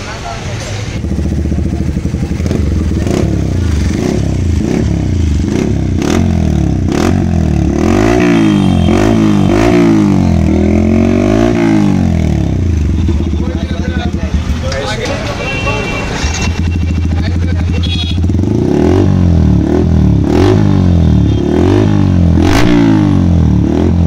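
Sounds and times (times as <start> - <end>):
motorcycle engine idling: 0.8 - 7.7, 11.9 - 15.9, 16.5 - 18.5
motorcycle engine revving: 0.8 - 24.0.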